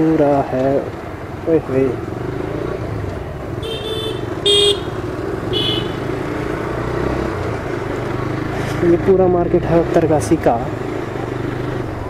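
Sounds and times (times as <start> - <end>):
motorcycle engine running: 0.9 - 12.0
vehicle horn beeps: 3.6 - 6.1.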